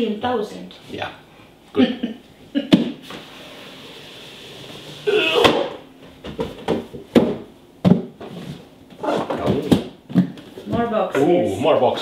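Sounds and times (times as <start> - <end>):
cardboard knocks: 6.2 - 8.3.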